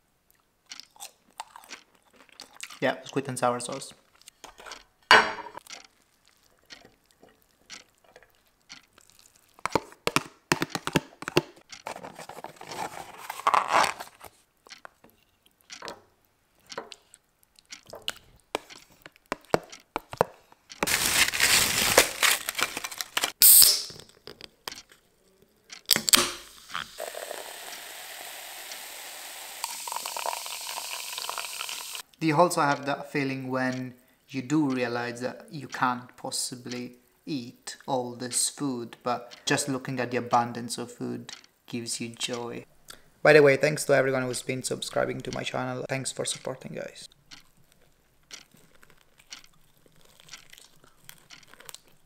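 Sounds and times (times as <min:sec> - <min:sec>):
cola fizzing into a glass: 0:26.4 - 0:32.0.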